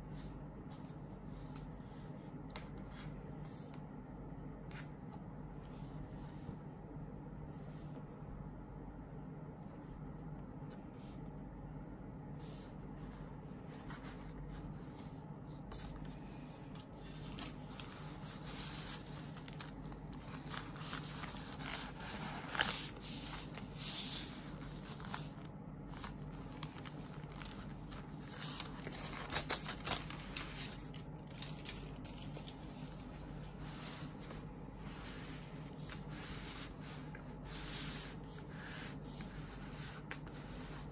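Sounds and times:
steady low hum: 0:00.0 - 0:40.9
plastic rustling and crinkling: 0:15.7 - 0:39.3.

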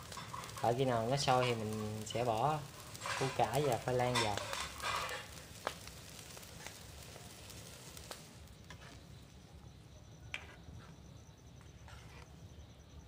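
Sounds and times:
ladle stirring curry in a wok: 0:00.0 - 0:09.0.

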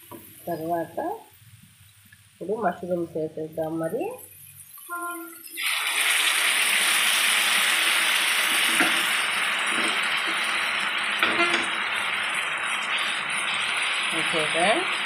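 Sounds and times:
mushrooms sizzling in oily pan: 0:00.0 - 0:15.0
wooden spatula knocking pan: 0:11.2 - 0:11.8.

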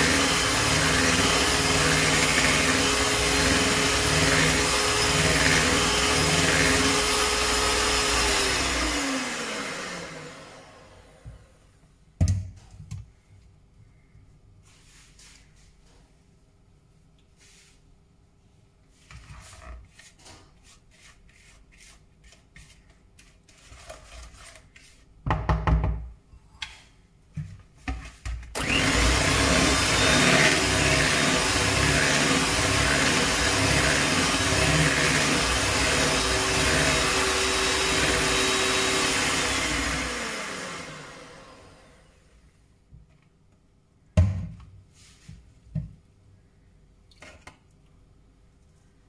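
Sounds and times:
electric hand mixer beating batter: 0:00.0 - 0:11.2, 0:28.6 - 0:42.1.

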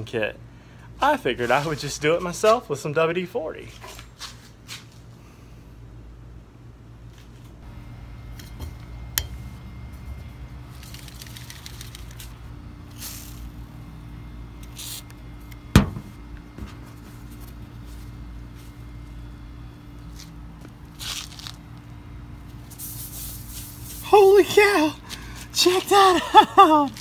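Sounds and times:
steady low hum: 0:00.0 - 0:27.0
paper handling noise: 0:09.9 - 0:13.6, 0:20.0 - 0:21.8
sharp knock: 0:15.8 - 0:16.1.

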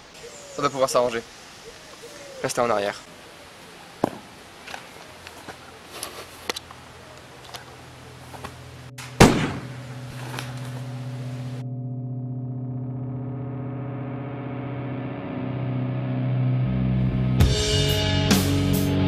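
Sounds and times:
faint clicks and rustles: 0:04.6 - 0:08.8
low gong-like droning tone: 0:08.6 - 0:17.3
sudden loud ringing bang: 0:09.0 - 0:10.2.

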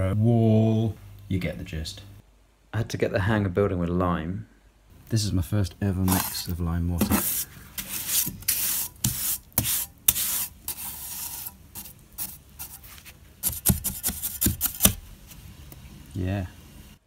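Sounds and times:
trowel scraping gritty mortar: 0:06.0 - 0:15.0.

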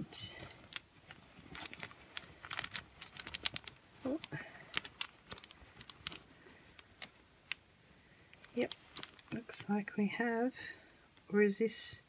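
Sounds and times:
wooden pieces clicking: 0:00.3 - 0:07.6, 0:08.3 - 0:09.7.

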